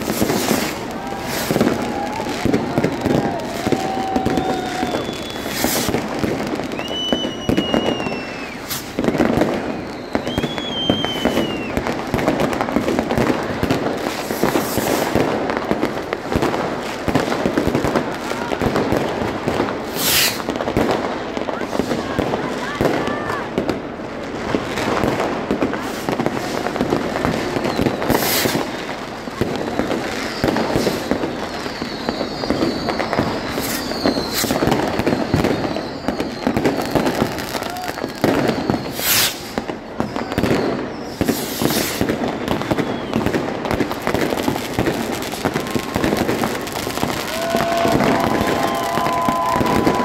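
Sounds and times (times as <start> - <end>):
rocket falling whistle: 0.0 - 11.8, 19.9 - 20.5, 27.5 - 28.7, 29.6 - 50.0
crowd voices: 0.0 - 50.0
fireworks crackling and popping: 0.0 - 50.0
loud firework bangs: 0.0 - 50.0.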